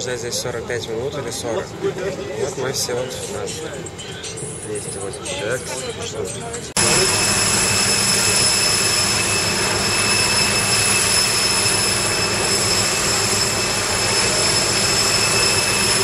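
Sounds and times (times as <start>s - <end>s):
high-pitched turbine whine: 0.0s - 16.0s
jet turbine roar: 6.6s - 16.0s.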